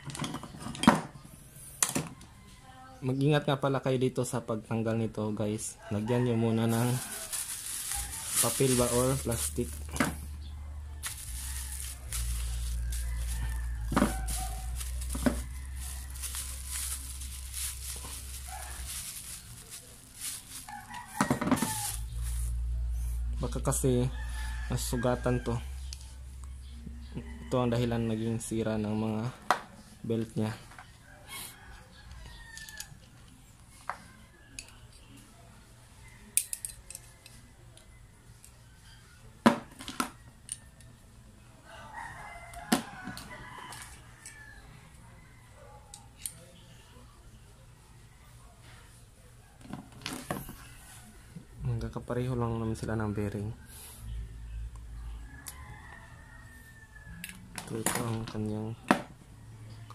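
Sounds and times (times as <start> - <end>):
plastic bag rustling and crinkling: 6.5 - 10.4, 11.0 - 22.6.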